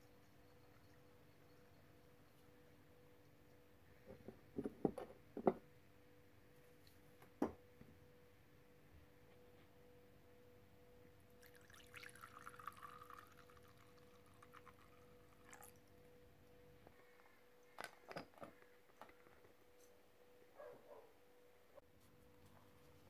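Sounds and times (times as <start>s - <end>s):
faint steady hum: 0.0s - 23.0s
liquid pouring into a cup: 11.4s - 15.9s.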